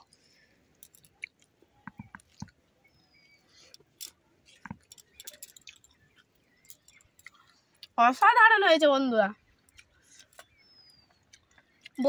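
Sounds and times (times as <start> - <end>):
person chewing: 0.0 - 2.6, 3.2 - 8.0, 9.6 - 12.0
small wet clicks: 0.0 - 2.6, 3.6 - 8.2, 9.5 - 12.0.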